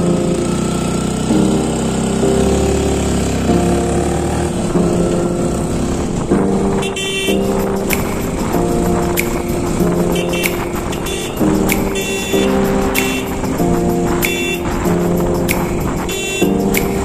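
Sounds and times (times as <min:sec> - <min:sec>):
motorcycle engine running: 0:00.0 - 0:04.7
wind rush on camera: 0:05.6 - 0:17.0.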